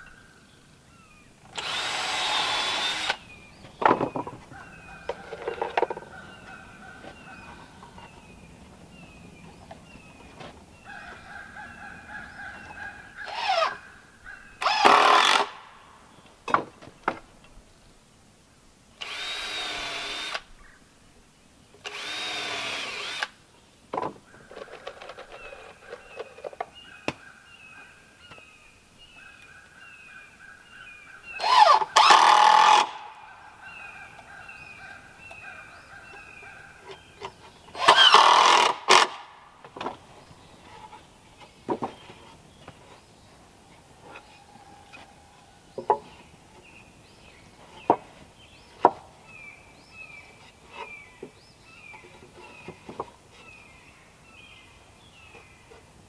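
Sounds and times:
birds calling: 0.0s - 17.9s, 21.7s - 56.0s
power drill running: 1.5s - 3.2s, 19.0s - 20.4s, 21.9s - 23.3s.

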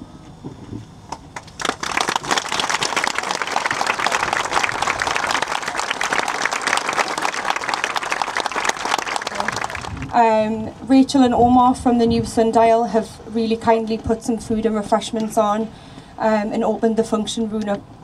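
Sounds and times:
person clapping close by: 1.1s - 10.1s
crowd applauding: 1.4s - 10.2s.

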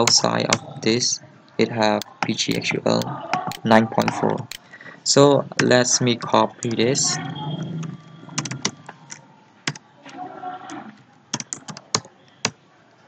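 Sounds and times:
keyboard keys clicking: 2.0s - 4.7s, 5.5s - 9.8s, 11.3s - 12.6s.

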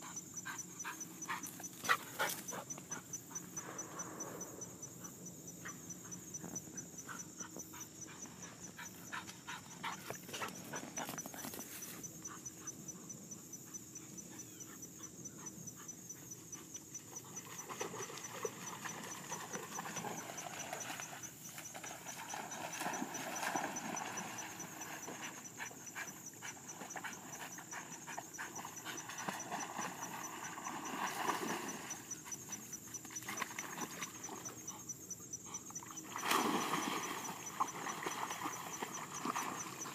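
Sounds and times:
dog panting hard: 0.0s - 3.6s, 7.0s - 11.6s, 25.2s - 29.4s.

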